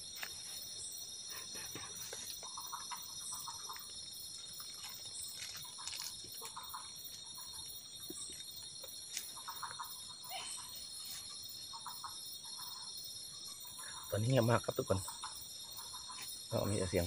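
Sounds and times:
frogs chirping: 0.0s - 17.0s
high insect drone: 0.0s - 17.0s.

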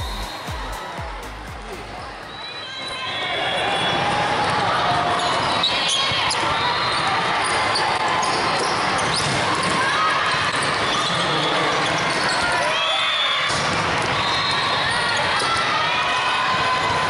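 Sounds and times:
crowd chatter: 0.0s - 13.0s.

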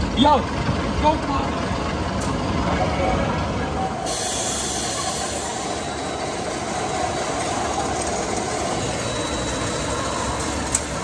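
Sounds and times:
roller coaster train running: 0.0s - 11.0s.

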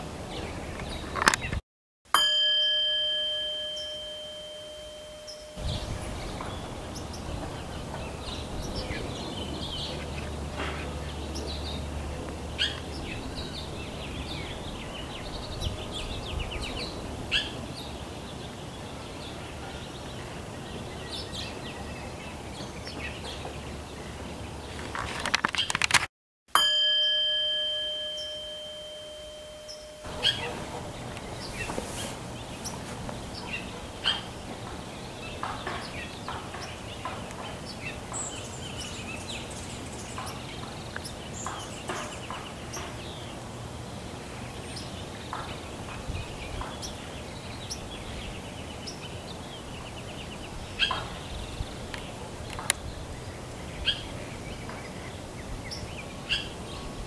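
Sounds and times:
birds calling and chirping: 0.0s - 1.6s, 3.6s - 25.8s, 27.5s - 57.0s
chime ringing: 2.1s - 5.9s, 26.5s - 30.5s
low steady hum: 26.6s - 35.2s.

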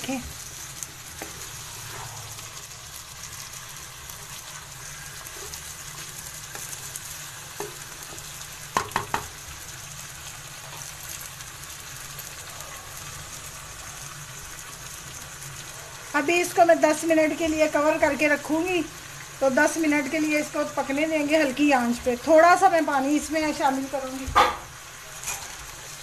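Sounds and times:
food sizzling in oil: 0.0s - 26.0s
spatula knocking against pan: 8.7s - 9.4s.

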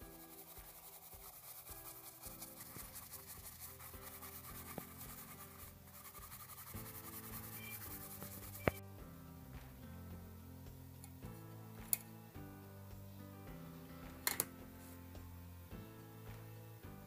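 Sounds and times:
brush scrubbing circuit board: 0.0s - 8.8s
soft background music: 0.0s - 17.0s.

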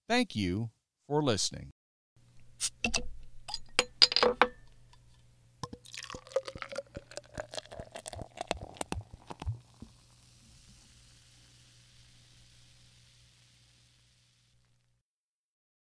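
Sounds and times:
liquid poured into a glass: 5.6s - 14.3s.

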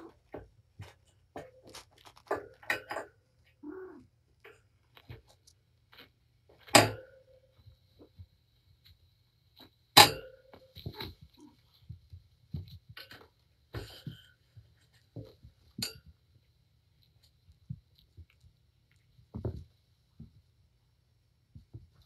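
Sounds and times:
cats playing knocks and thumps: 10.4s - 16.3s, 17.4s - 20.5s, 21.5s - 22.0s.

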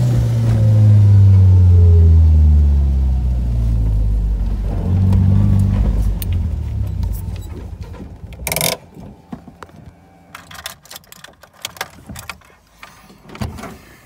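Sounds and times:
car engine switching off: 0.0s - 10.6s
light clicks and key rattles: 6.9s - 8.9s, 9.6s - 13.5s.

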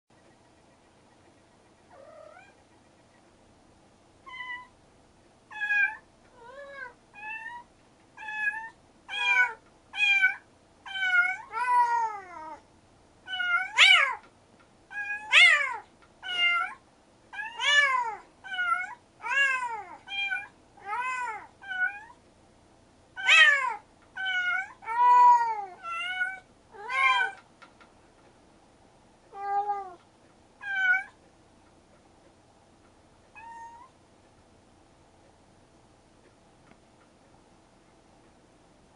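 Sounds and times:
cats meowing: 1.9s - 2.6s, 4.2s - 4.8s, 5.5s - 12.6s, 13.3s - 14.3s, 14.9s - 22.2s, 23.2s - 27.4s, 29.3s - 30.0s, 30.6s - 31.2s, 33.3s - 34.0s.

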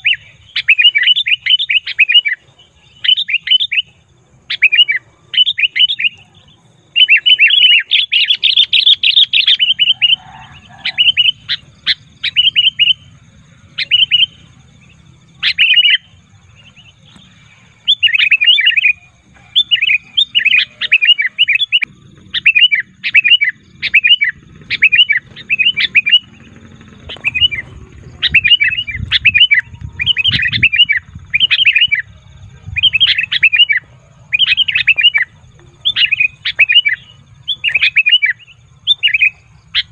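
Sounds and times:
bird chattering calls: 0.0s - 39.9s
low rumble: 23.6s - 33.1s.

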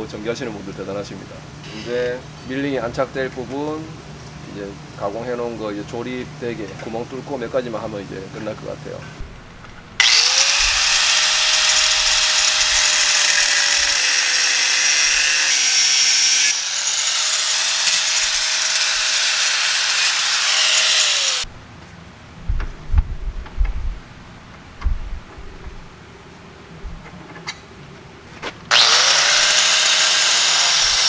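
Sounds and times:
handheld grinder grinding metal: 10.0s - 21.5s, 28.7s - 31.0s.

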